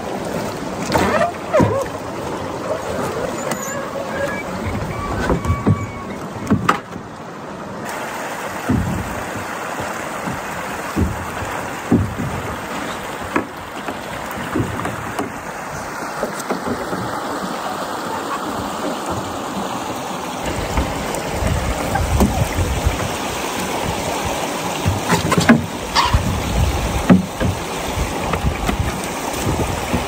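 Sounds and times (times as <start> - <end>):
water rushing and splashing: 0.0 - 30.0
light knocks against hull: 4.7 - 7.1, 8.6 - 17.6, 20.4 - 30.0.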